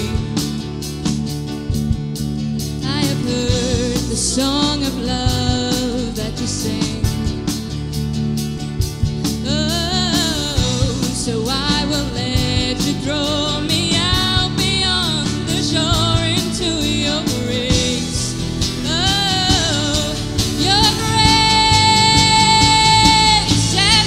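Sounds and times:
live band playing: 0.0s - 24.0s
women singing with vibrato: 2.8s - 7.3s, 9.4s - 24.0s.

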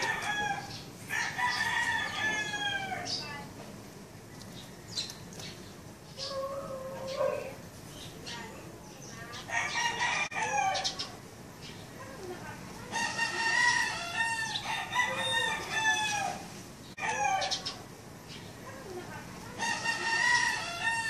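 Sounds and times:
roosters crowing: 0.0s - 3.3s, 6.2s - 7.7s, 9.3s - 11.2s, 12.9s - 18.0s, 19.5s - 21.0s.

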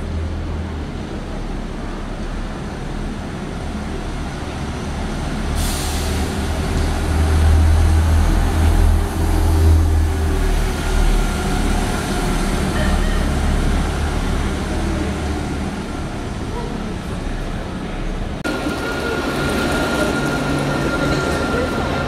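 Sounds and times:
bus engine passing: 0.0s - 22.0s
air brake hiss: 5.6s - 6.4s.

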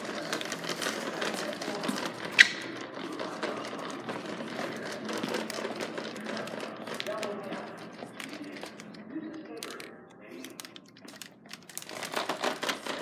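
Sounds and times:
vacuum cleaner rattling on floor: 0.0s - 9.0s, 11.1s - 13.0s.

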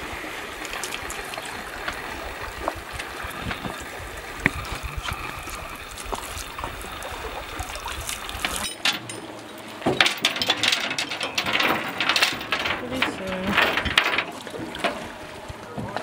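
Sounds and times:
water splashing from hose: 0.0s - 9.1s
metal chain clinking: 8.6s - 14.3s.

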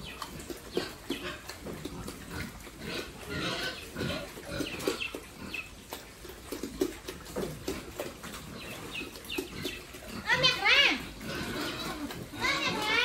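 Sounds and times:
pigs grunting: 0.0s - 13.0s.

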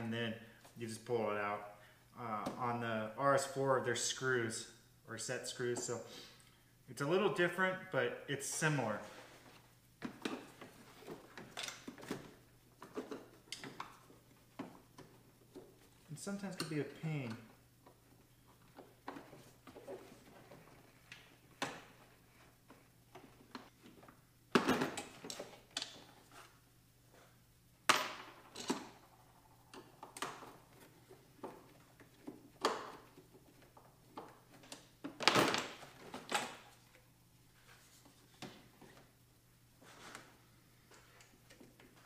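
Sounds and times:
clicks knocks and rattles of parts: 10.0s - 16.0s, 16.6s - 26.2s, 27.9s - 37.0s.

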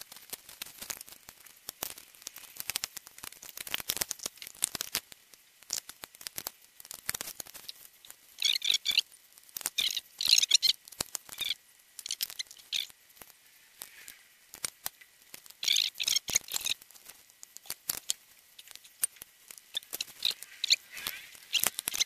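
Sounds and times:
high squeaky chirping: 8.4s - 9.1s, 9.7s - 12.9s, 15.6s - 16.8s, 17.6s - 19.1s, 19.7s - 22.0s.

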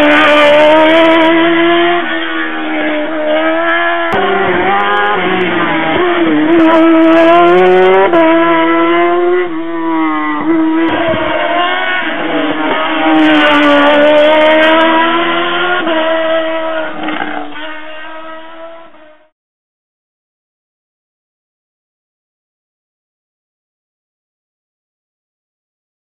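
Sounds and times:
race car engine revving: 0.0s - 19.3s.

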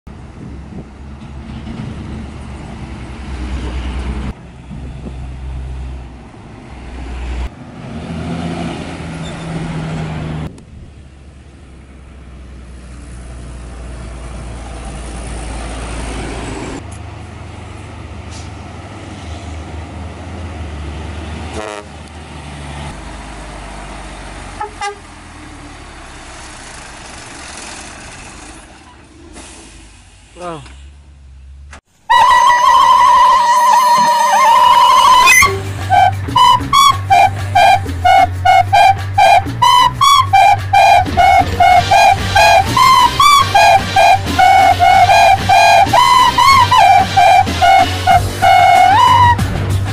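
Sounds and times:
diesel trucks driving under load: 0.1s - 49.9s
truck horn toots: 21.5s - 22.0s, 24.6s - 25.1s, 32.1s - 49.9s.

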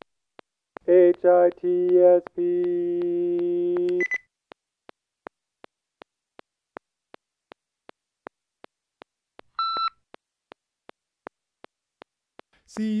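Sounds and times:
electronic device ticking: 0.0s - 13.0s
electronic beep: 9.6s - 10.0s.

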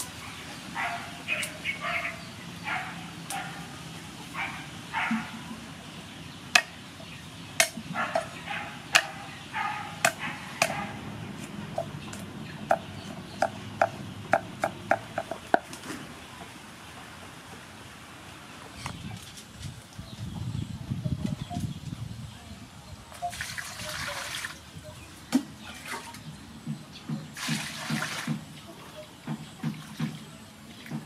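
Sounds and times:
cleaver chopping on wooden board: 8.9s - 9.2s, 10.0s - 10.8s, 11.4s - 15.7s.

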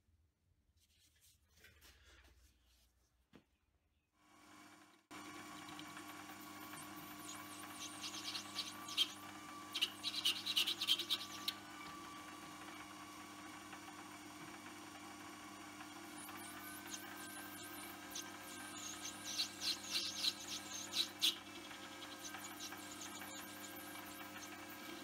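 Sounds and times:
lathe motor hum and whine: 4.4s - 25.0s
scratchy crackles of tool cutting: 16.2s - 24.9s.

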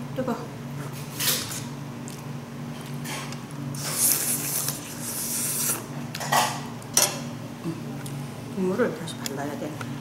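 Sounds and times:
steady low hum: 0.0s - 10.0s
mouth and breath sounds eating: 3.8s - 5.9s.

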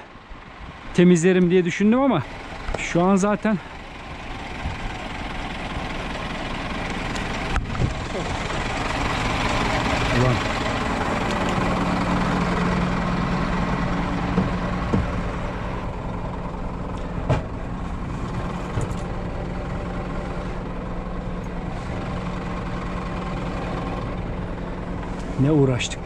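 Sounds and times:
diesel truck engine idling: 0.0s - 26.0s
short knocks and clunks: 14.2s - 15.5s, 17.1s - 17.6s.

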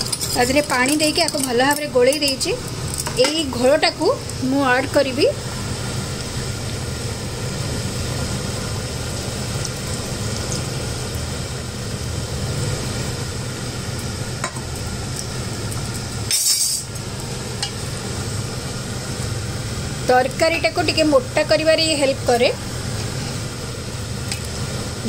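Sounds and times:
spoon stirring a pot: 0.0s - 3.4s
steady hum: 0.0s - 25.0s.

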